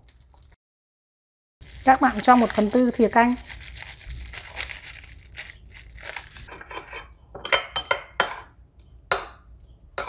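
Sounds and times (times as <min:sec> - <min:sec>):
paper packet crinkling: 0:01.6 - 0:06.5
metal clinking on ceramic bowl: 0:07.4 - 0:08.5.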